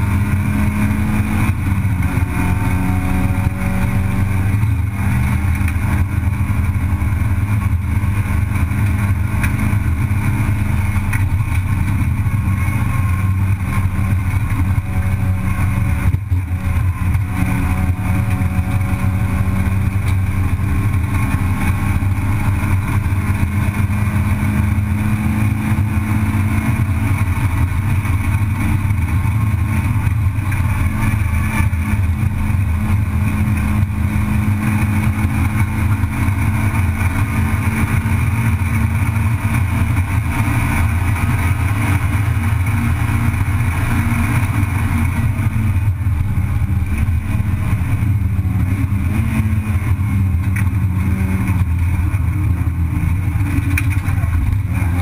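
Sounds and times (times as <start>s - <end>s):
racing car engine running hard: 0.0s - 55.0s.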